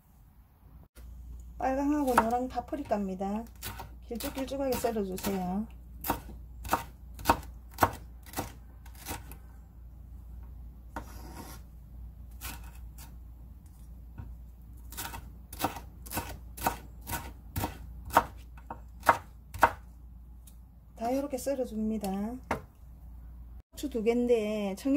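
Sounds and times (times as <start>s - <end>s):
knife slicing on wooden board: 11.0s - 11.7s.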